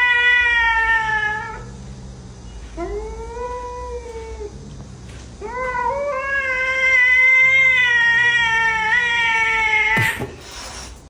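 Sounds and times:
cat yowling: 0:00.0 - 0:01.7, 0:05.4 - 0:10.2.

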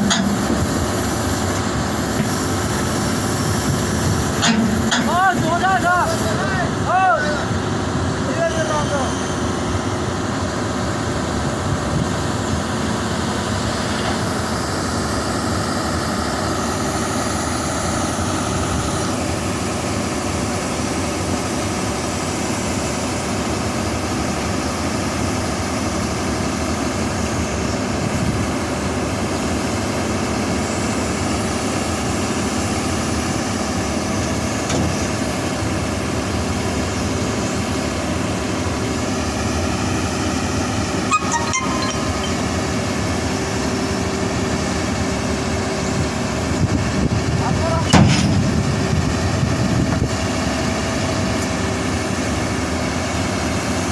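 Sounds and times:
excavator diesel engine running: 0:00.0 - 0:53.9.

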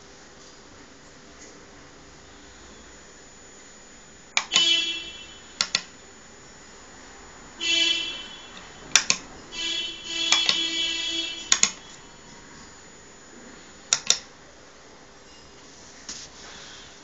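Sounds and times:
steady tone with overtones: 0:02.1 - 0:15.2
push-buttons clicking: 0:04.4 - 0:04.7, 0:05.6 - 0:05.9, 0:08.6 - 0:09.3, 0:10.2 - 0:10.6, 0:11.4 - 0:12.0, 0:13.9 - 0:14.3.

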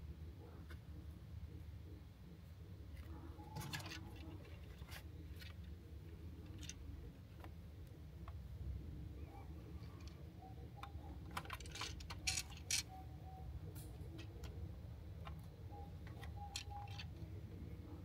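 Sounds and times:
hard plastic parts clicking: 0:10.8 - 0:13.0.

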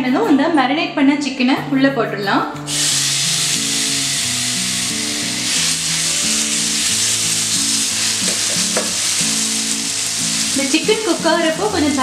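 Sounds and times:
soft background music: 0:00.0 - 0:12.0
chicken sizzling in oil: 0:02.7 - 0:12.0.

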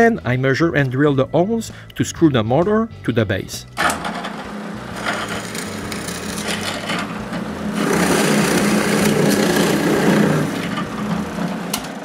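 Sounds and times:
drill bit boring into plywood: 0:03.8 - 0:11.9
drill press motor hum: 0:03.8 - 0:12.0.

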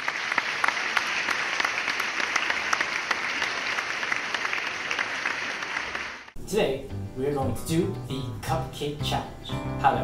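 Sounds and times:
audience applause: 0:00.0 - 0:06.4.

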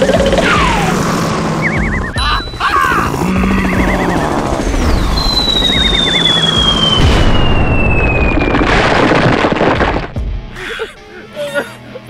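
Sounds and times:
falling whistle: 0:03.6 - 0:08.6
explosion boom: 0:04.7 - 0:10.2.

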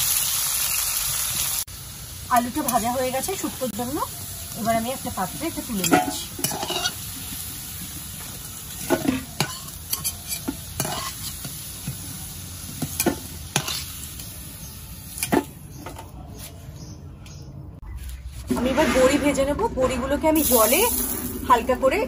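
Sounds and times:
hot oil sizzling: 0:00.0 - 0:15.6, 0:20.4 - 0:22.0
metal spatula scraping and clinking: 0:05.7 - 0:07.1, 0:08.8 - 0:11.5, 0:12.9 - 0:14.0.

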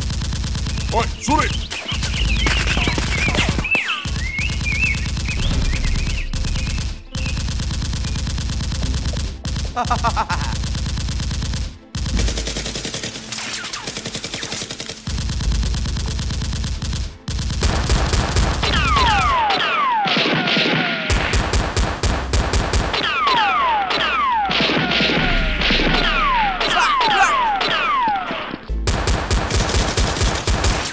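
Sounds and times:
automatic gunfire bursts: 0:00.0 - 0:24.2, 0:28.9 - 0:30.9.

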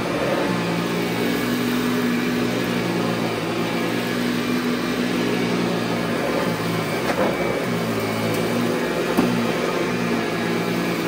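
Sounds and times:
vacuum cleaner running: 0:00.0 - 0:11.0.

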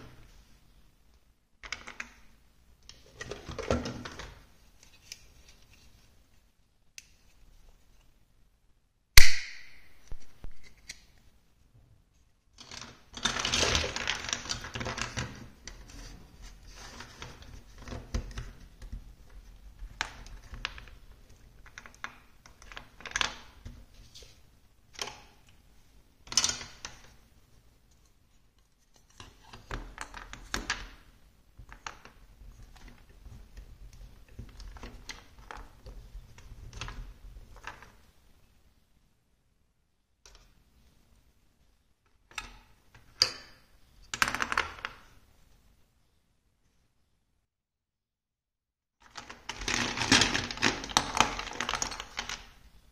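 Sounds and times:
plastic blocks clattering: 0:49.0 - 0:52.6.

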